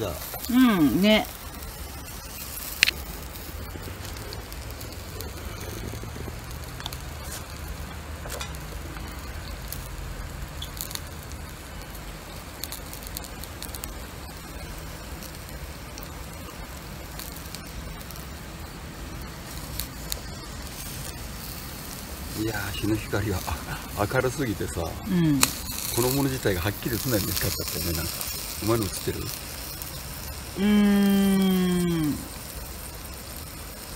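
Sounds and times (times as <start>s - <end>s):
skewers sizzling on charcoal grill: 0.0s - 33.9s.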